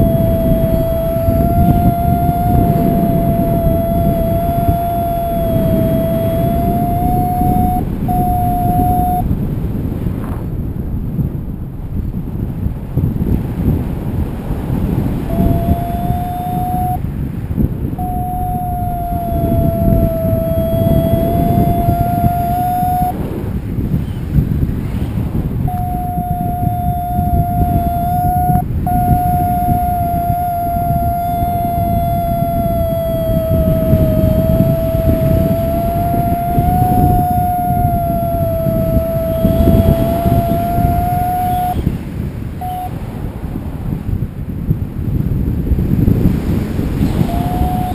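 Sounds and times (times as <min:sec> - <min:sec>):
steady electronic tone: 0:00.0 - 0:09.3, 0:15.3 - 0:17.0, 0:18.0 - 0:23.1, 0:25.7 - 0:41.8, 0:42.6 - 0:42.9, 0:47.1 - 0:47.9
wind rushing over microphone: 0:00.0 - 0:47.9.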